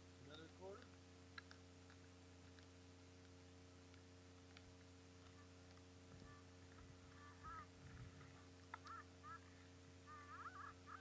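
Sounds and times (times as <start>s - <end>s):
steady low hum: 0.0s - 11.0s
distant birds calling: 4.7s - 11.0s.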